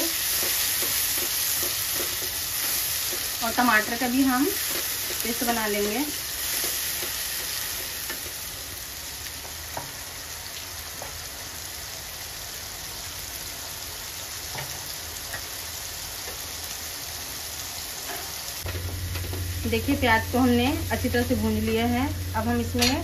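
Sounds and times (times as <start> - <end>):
paste sizzling in oil: 0.0 - 10.6.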